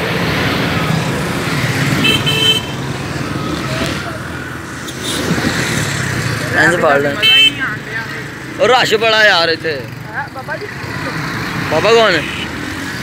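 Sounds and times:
road and traffic noise: 0.0 - 13.0
vehicle horn beep: 2.0 - 2.8, 7.2 - 7.7.

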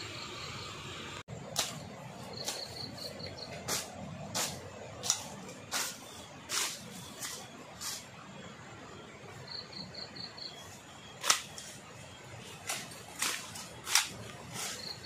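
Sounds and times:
blade slashing brush: 1.5 - 8.1, 11.2 - 11.9, 12.5 - 15.0.

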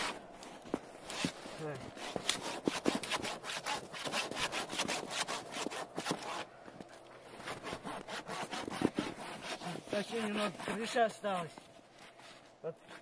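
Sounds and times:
hand saw cutting branch: 1.0 - 6.5, 7.4 - 11.6.

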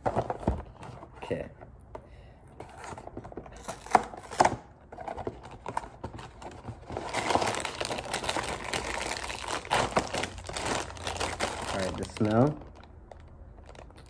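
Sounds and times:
plastic bag crinkling: 7.0 - 14.0.

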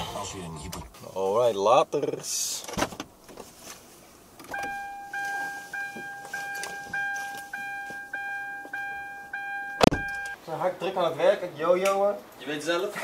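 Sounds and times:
bag rustling: 3.3 - 8.1
car warning chime beeping: 4.5 - 10.4.

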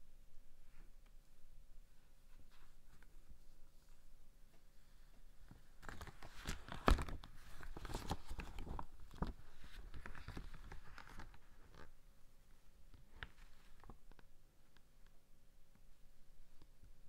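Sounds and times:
swim cap rustling and crackling: 2.2 - 12.0.

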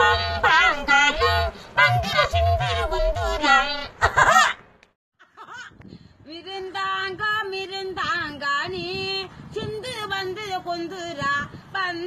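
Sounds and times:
high-pitched voice singing: 0.0 - 4.0.

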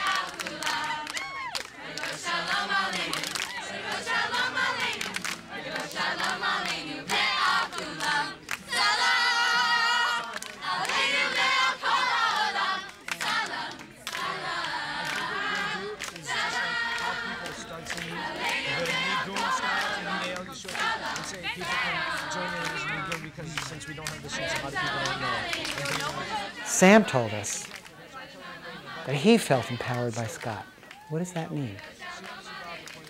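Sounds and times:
crowd singing and shouting: 0.0 - 33.0.

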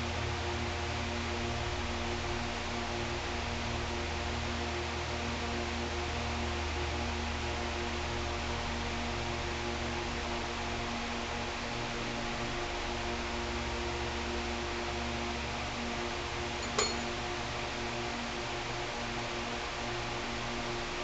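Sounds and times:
steady electrical hum: 0.0 - 19.7
metallic clink with ring: 16.6 - 17.2.

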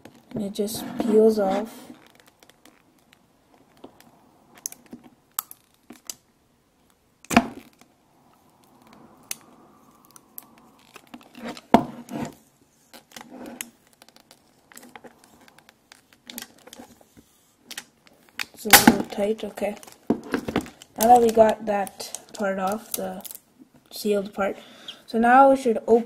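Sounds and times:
plastic seal crackling: 17.7 - 23.4.

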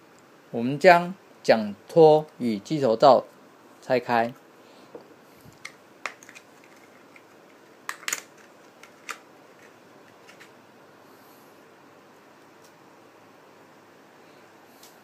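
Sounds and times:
plastic clicks and snaps: 7.9 - 10.5.

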